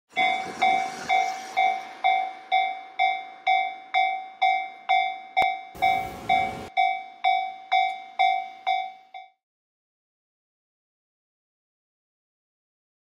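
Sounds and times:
level crossing bell ringing: 0.1s - 9.4s.

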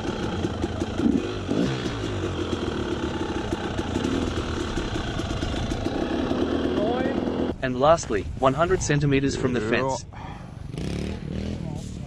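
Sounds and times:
motorcycle engine idling: 0.0s - 7.6s.

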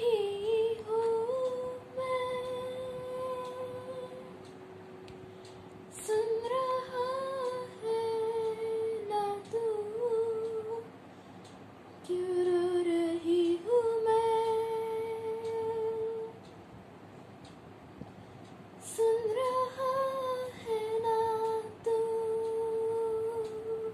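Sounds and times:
girl humming a melody: 18.8s - 23.9s.

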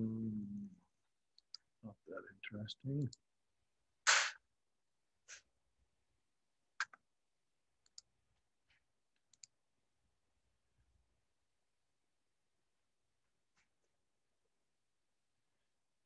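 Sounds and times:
faint clicks: 7.8s - 8.1s, 9.2s - 9.5s.

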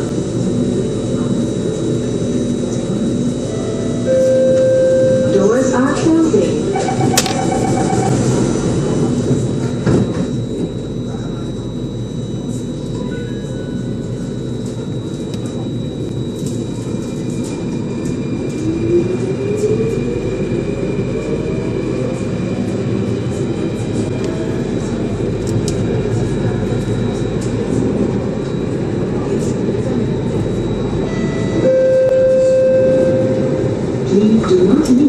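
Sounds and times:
train rumbling: 0.0s - 35.0s
train whine rising in pitch: 2.9s - 24.7s, 28.1s - 34.1s.

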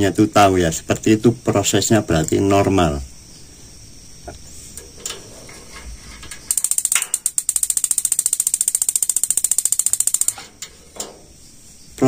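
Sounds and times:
gas igniter ticking rapidly: 6.4s - 10.4s.

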